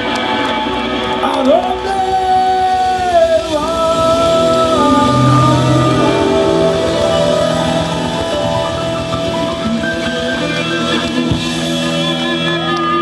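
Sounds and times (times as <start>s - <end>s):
blues band playing live: 3.6s - 11.5s.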